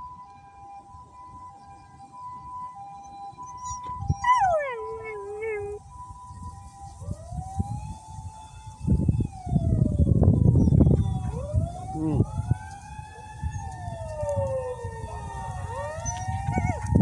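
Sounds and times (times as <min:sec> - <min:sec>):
two-tone emergency siren: 0:00.0 - 0:17.0
wailing siren: 0:00.0 - 0:17.0
dog howling: 0:03.5 - 0:05.8, 0:13.4 - 0:17.0.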